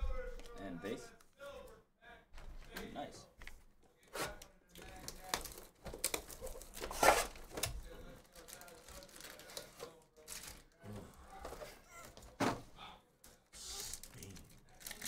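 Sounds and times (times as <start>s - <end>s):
plastic wrap crinkling and tearing: 4.2s - 10.8s, 13.6s - 15.0s
foil packs and cardboard rustling: 4.2s - 12.3s, 13.6s - 15.0s.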